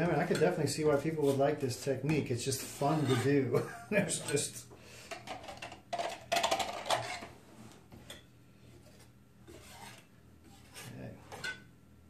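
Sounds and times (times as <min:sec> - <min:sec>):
rasping scrapes of painting supplies: 0:02.6 - 0:03.4, 0:08.6 - 0:11.4.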